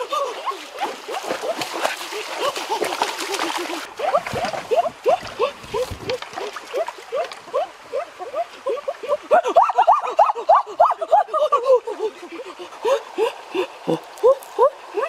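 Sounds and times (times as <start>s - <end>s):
feet splashing through water: 0.0s - 7.6s.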